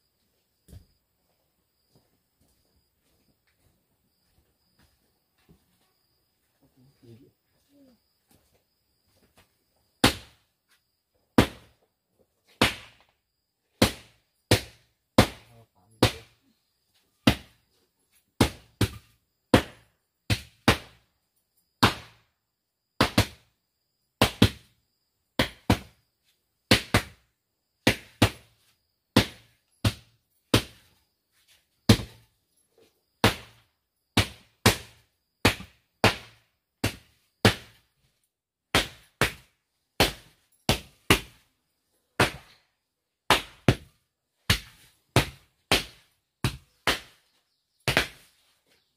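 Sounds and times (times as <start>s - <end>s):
bamboo pounding earth floor: 10.0s - 10.5s, 11.3s - 11.8s, 12.5s - 16.5s, 17.2s - 17.7s, 18.4s - 21.1s, 21.8s - 22.3s, 23.0s - 23.5s, 24.2s - 24.8s, 25.4s - 26.1s, 26.7s - 31.0s, 31.8s - 32.3s, 33.0s - 41.5s, 42.1s - 48.9s.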